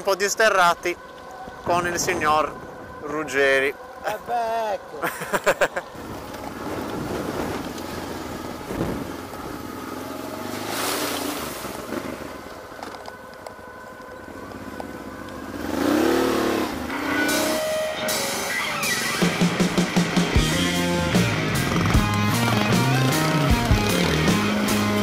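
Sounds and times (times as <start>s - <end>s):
motorcycle engine revving: 6.0s - 13.0s, 14.2s - 25.0s.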